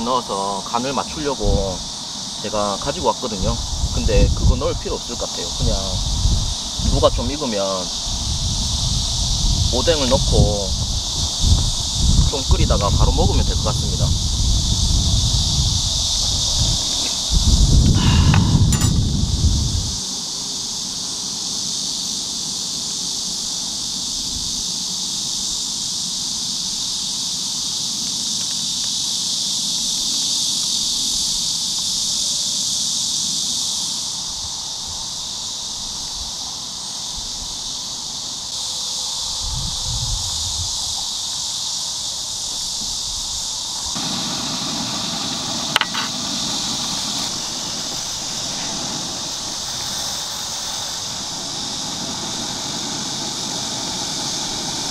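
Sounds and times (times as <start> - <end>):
insects chorus: 0.0 - 54.9
sharp click: 18.3 - 19.1, 45.8 - 46.2
broth bubbling in pan: 44.0 - 54.9.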